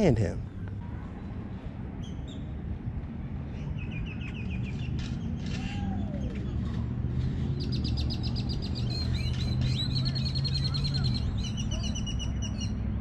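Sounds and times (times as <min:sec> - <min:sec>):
small birds singing: 0:03.5 - 0:13.0.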